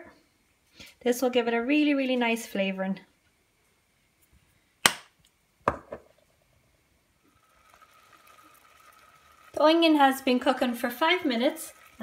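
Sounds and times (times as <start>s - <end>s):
knocks on hard kitchen surface: 5.7s - 6.0s
faint hiss of pot simmering: 6.1s - 12.0s.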